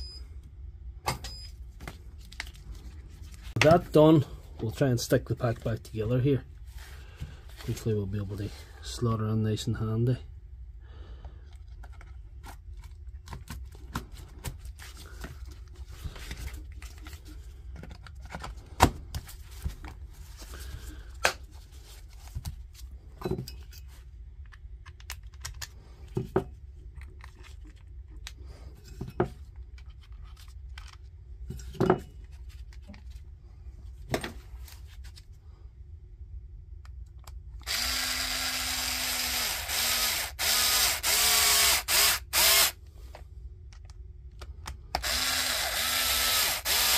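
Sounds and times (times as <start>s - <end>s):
plastic parts clicking together: 24.4s - 25.8s
power drill driving screws: 37.6s - 42.8s, 45.0s - 46.9s.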